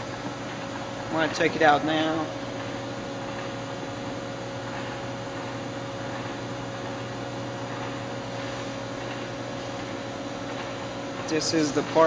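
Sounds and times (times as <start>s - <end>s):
machine hum: 0.0s - 12.0s.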